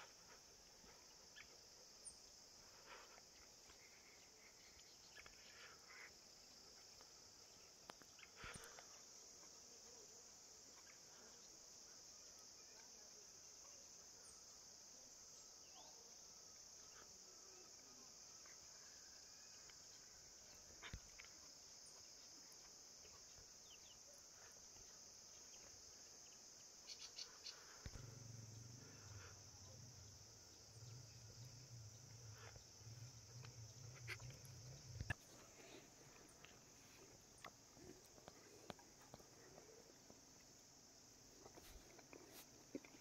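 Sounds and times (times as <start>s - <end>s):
crickets chirring: 0.0s - 43.0s
low hum: 27.9s - 37.0s.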